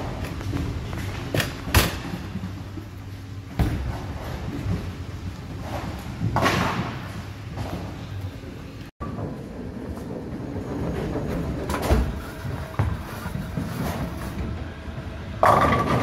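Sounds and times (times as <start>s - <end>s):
bowling ball rolling rumble: 9.0s - 16.0s
bowling pins crashing: 15.4s - 16.0s.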